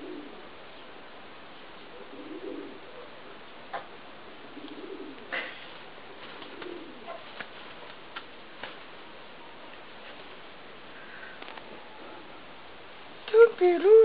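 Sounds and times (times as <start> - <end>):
pigeon cooing: 0.0 - 0.5, 1.8 - 8.0, 11.1 - 12.4.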